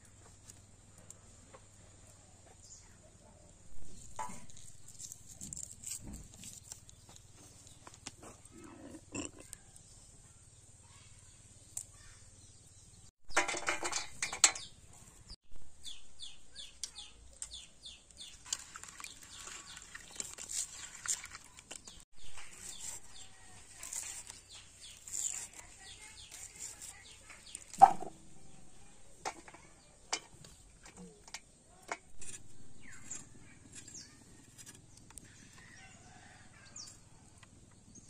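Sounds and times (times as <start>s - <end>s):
birds chirping: 30.9s - 38.0s.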